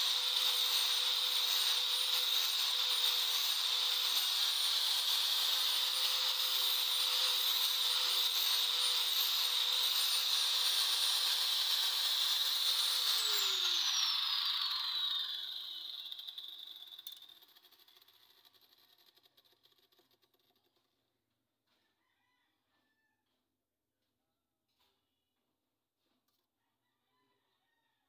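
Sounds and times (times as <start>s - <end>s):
angle grinder grinding steel: 0.0s - 20.4s
grinder disc spinning down: 0.0s - 20.6s.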